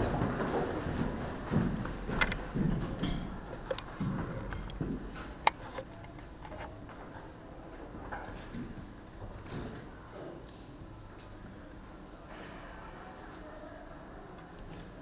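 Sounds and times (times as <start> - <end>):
heeled shoes footsteps: 0.0 - 5.7.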